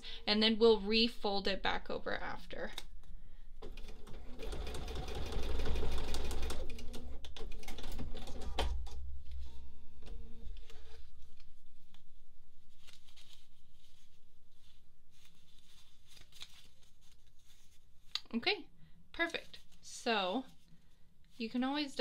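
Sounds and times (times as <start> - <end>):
sewing machine stitching: 3.6 - 8.6.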